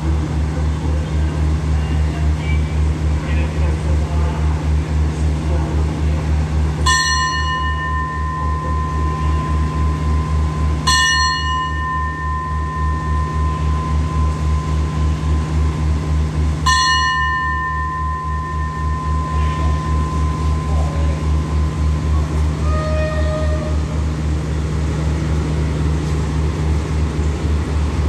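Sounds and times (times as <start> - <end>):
diesel engine idling: 0.0 - 28.0
metal bell ringing: 6.8 - 23.8.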